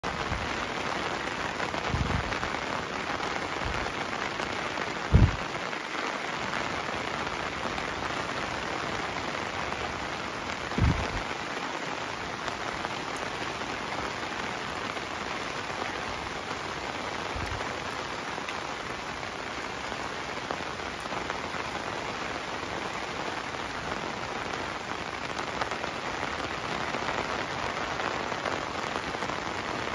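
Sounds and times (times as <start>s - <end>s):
heavy rain: 0.0s - 29.9s
low thumps: 5.1s - 5.4s, 10.7s - 11.2s.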